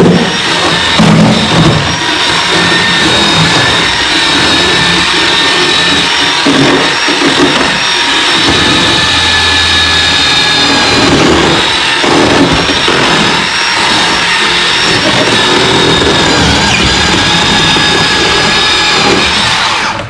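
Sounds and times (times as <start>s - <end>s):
chainsaw cutting wood: 0.0s - 20.0s.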